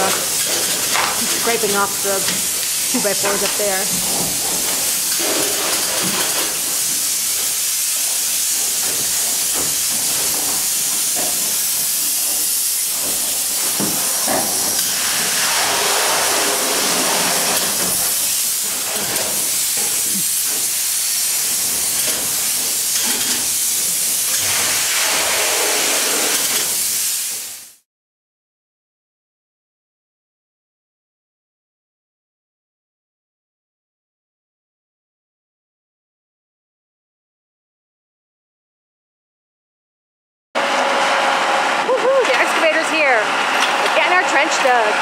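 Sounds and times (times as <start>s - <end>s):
spray foam gun hissing: 0.0s - 27.8s.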